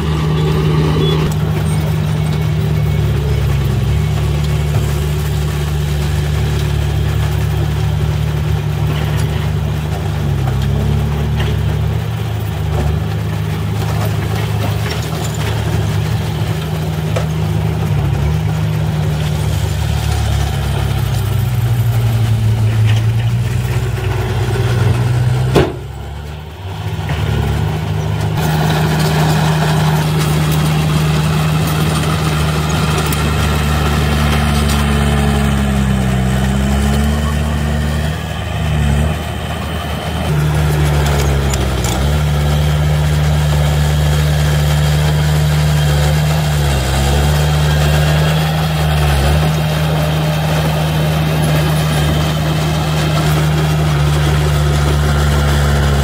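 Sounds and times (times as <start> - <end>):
bulldozer diesel engine running: 0.0 - 56.0
diesel truck engine running: 0.0 - 56.0
soil tipping from truck bed: 12.6 - 38.1.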